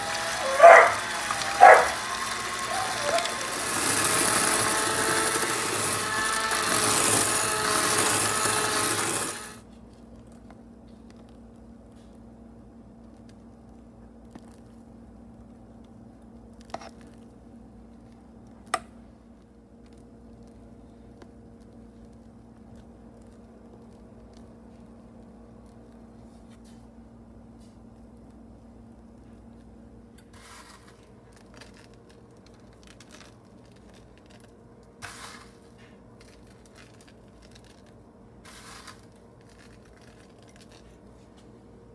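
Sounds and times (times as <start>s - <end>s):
spatula spreading filling: 0.0s - 9.6s, 30.2s - 41.1s
crinkling rustling from handling: 29.2s - 41.6s.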